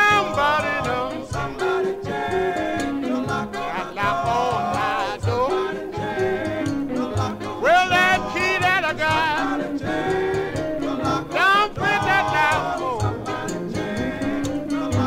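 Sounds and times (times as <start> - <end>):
band keeping a steady beat: 0.0 - 15.0
vocal group harmony: 0.0 - 15.0
singer's voice sweeping up high: 11.3 - 13.1.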